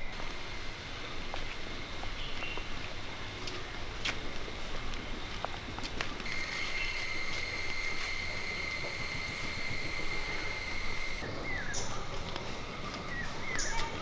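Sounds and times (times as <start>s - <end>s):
high-pitched insect drone: 6.3s - 14.0s.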